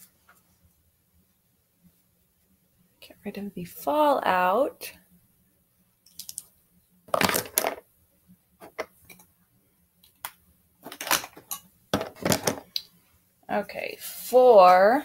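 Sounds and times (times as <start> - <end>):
small hard objects clicking: 6.1 - 6.5.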